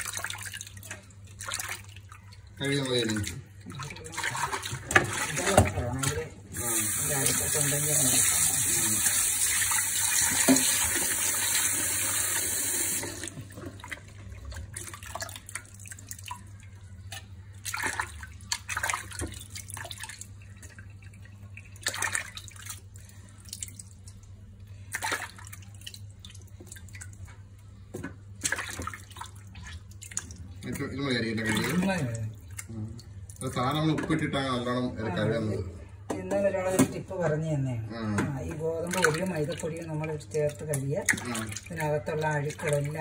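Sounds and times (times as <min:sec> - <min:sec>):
water splashing and sloshing: 0:00.0 - 0:34.6, 0:38.2 - 0:43.0
tap running into steel bowl: 0:10.3 - 0:11.0.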